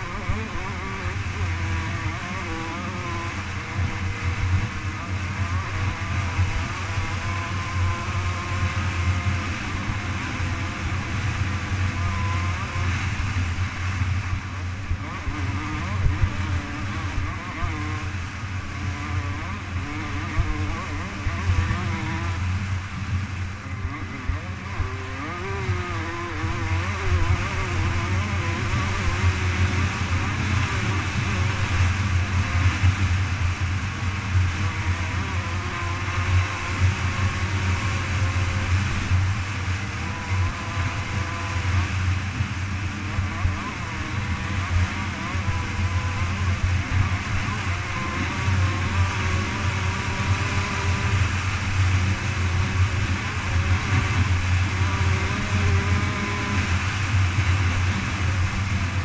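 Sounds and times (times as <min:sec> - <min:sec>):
dirt bike engine running hard: 0:00.0 - 0:59.0
wind rush on microphone: 0:00.0 - 0:59.0.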